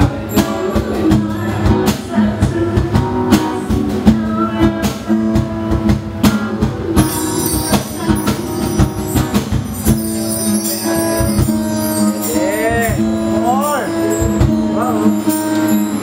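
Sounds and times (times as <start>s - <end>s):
acoustic guitar: 0.0s - 16.0s
cajon beats: 0.0s - 16.0s
bar chimes jingling: 7.1s - 16.0s.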